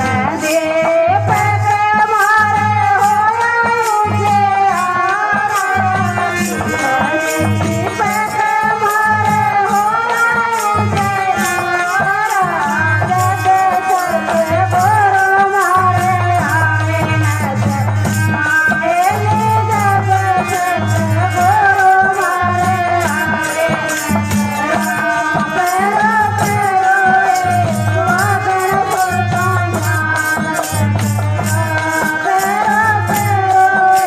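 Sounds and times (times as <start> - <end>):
shaken rattle rhythm: 0.0 - 34.0
gliding devotional melody: 5.0 - 8.6.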